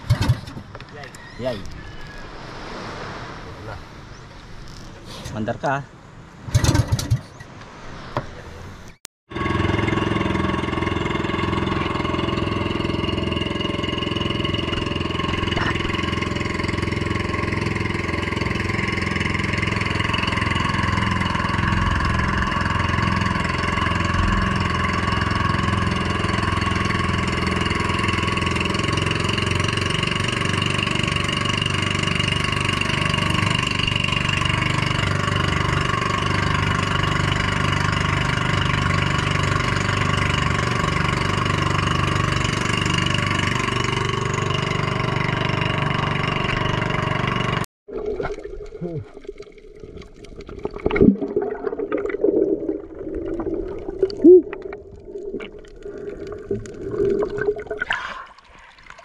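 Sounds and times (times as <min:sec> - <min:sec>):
small boat engine running: 0:09.3 - 0:47.7.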